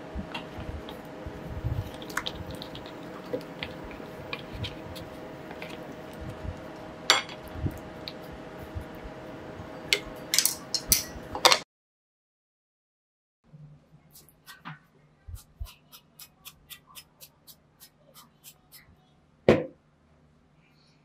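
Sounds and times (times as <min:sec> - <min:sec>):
faint hum: 0:00.0 - 0:11.4.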